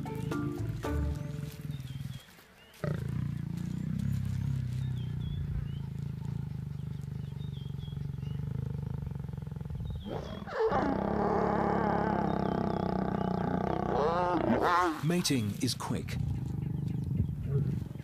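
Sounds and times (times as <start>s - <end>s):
lions growling: 1.2s - 2.2s, 2.8s - 15.2s, 16.0s - 18.0s
lioness snarling: 2.8s - 15.2s, 16.0s - 18.0s.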